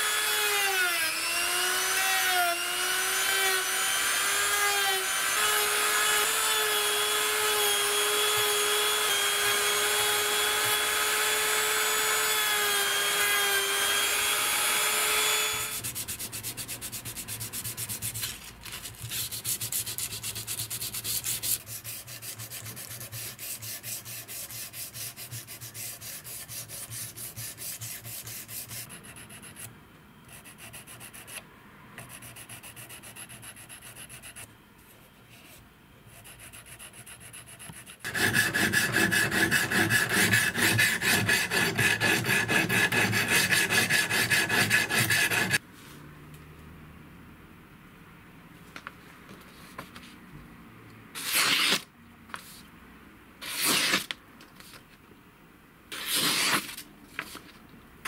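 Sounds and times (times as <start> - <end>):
hand-sanding strokes on wood: 19.0 - 29.3, 36.2 - 45.6
rotary tool sanding wood: 19.0 - 29.6, 36.2 - 45.6.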